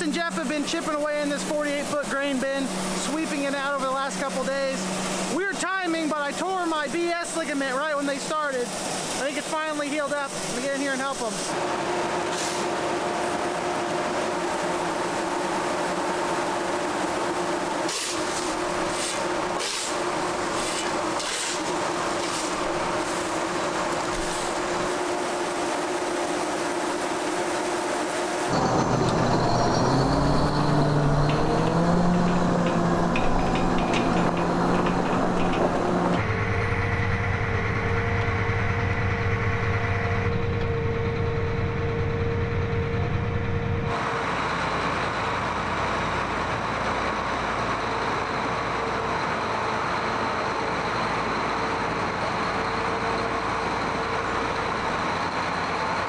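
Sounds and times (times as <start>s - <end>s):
diesel tractor engine revving: 0.0s - 9.4s, 11.5s - 56.0s
high whine: 0.0s - 44.5s
steady machine hum: 0.0s - 46.6s
sharp knocks: 31.3s - 36.2s.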